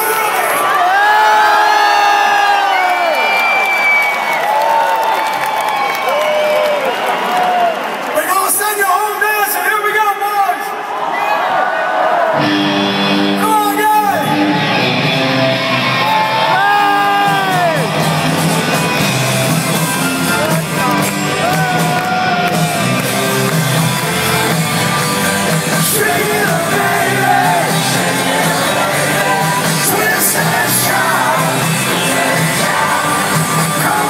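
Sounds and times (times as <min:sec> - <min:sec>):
audience shouting: 0:00.0 - 0:09.0, 0:13.3 - 0:34.0
live rock band with singing: 0:14.2 - 0:34.0.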